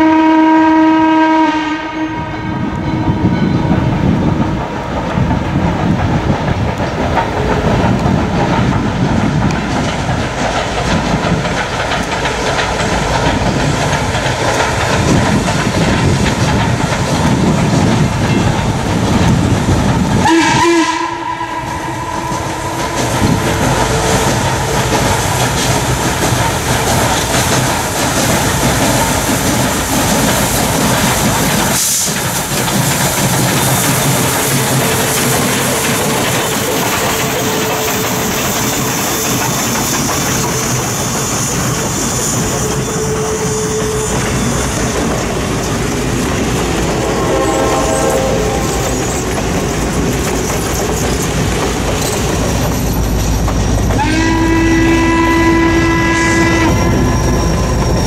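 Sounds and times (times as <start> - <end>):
steam whistle: 0.0 - 3.6, 20.2 - 24.2, 42.1 - 44.8, 46.9 - 49.3, 54.0 - 58.0
steam locomotive exhaust: 0.0 - 58.0.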